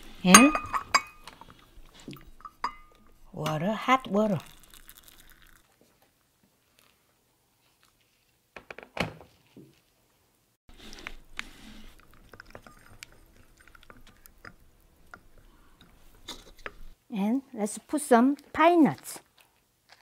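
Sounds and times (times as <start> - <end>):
spoon stirring tea in cup: 0.2 - 5.6, 10.8 - 16.9.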